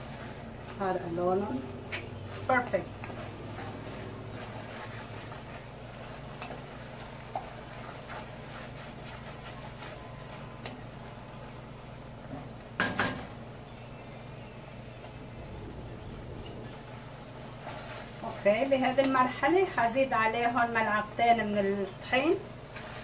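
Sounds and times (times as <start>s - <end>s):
onions sizzling: 0.0s - 23.0s
wooden spoon scraping a pot: 1.9s - 10.4s, 15.2s - 19.4s
low hum: 13.9s - 17.9s.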